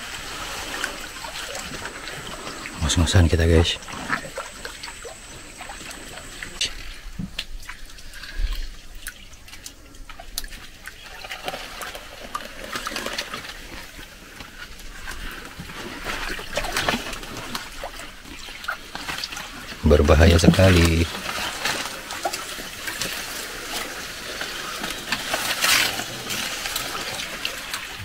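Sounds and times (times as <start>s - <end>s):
water sloshing and trickling: 0.0s - 28.0s
leaves rustling: 10.6s - 28.0s.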